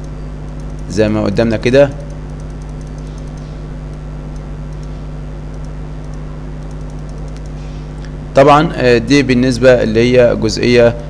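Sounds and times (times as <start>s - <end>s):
faint ticks: 0.0s - 0.9s, 2.0s - 8.1s
electrical hum with hiss: 0.0s - 11.0s.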